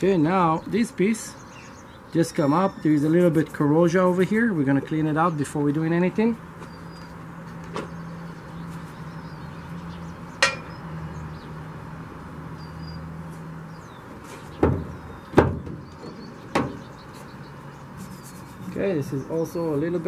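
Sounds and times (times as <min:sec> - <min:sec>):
metal hinge knocking and clinking: 0:10.4 - 0:10.7.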